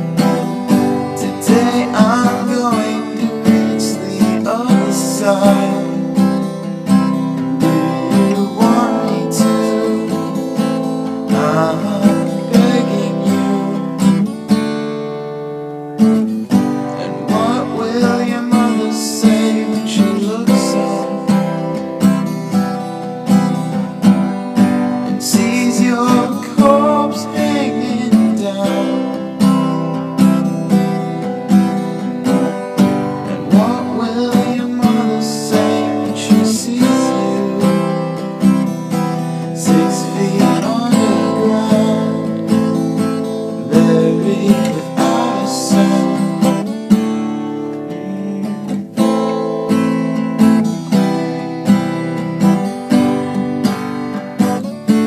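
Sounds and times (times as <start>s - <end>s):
acoustic guitar strumming: 0.0s - 55.0s.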